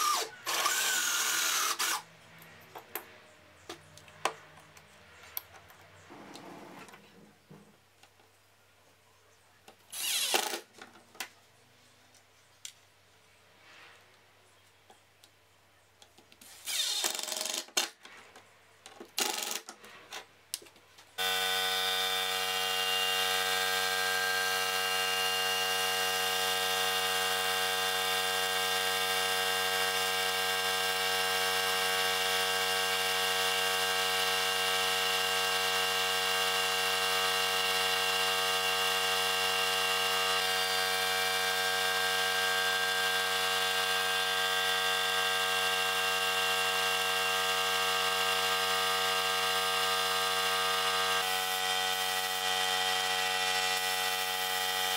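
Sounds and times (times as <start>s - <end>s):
cordless drill driving screws: 0.0s - 2.1s, 9.9s - 10.6s, 16.4s - 17.4s
paint sprayer motor humming: 21.2s - 54.9s.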